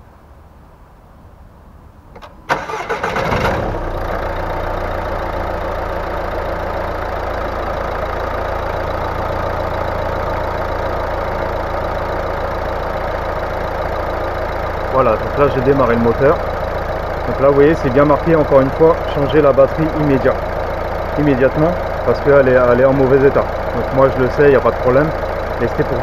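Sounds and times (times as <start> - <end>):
car engine idling: 2.1 - 26.0
car starter cranking: 2.2 - 4.7.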